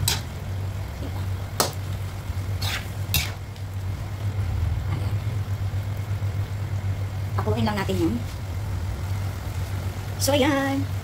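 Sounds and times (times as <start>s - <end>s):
steady low hum: 0.0s - 11.0s
spatula stirring in a wok: 0.9s - 3.7s
spatula scraping a pan: 2.5s - 3.4s.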